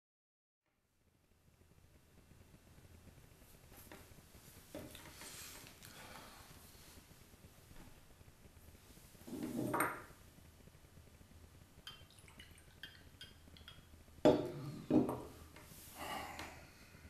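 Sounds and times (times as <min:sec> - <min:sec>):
bottle knocking on wooden table: 0:09.4 - 0:10.1, 0:14.2 - 0:15.3.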